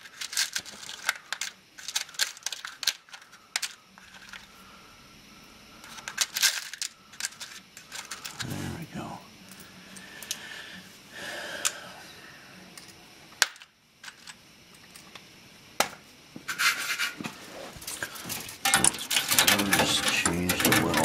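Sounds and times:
rattling and rustling of wiring: 0:00.0 - 0:04.5, 0:05.8 - 0:08.5, 0:16.6 - 0:21.0.

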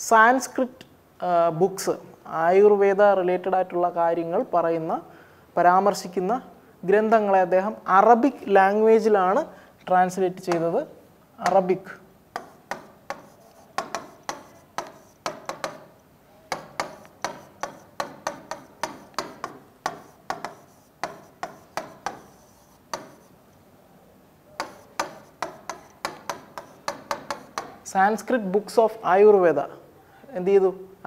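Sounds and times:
stylus tapping on glass: 0:12.4 - 0:23.3, 0:24.6 - 0:27.8.

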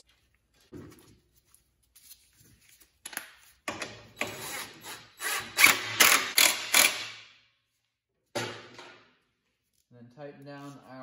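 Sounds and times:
cordless drill driving bolts: 0:04.1 - 0:07.1.

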